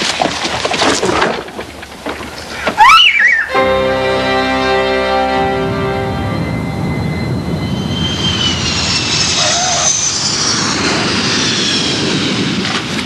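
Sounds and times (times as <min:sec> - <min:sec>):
jet engines at takeoff power: 0:06.6 - 0:13.0.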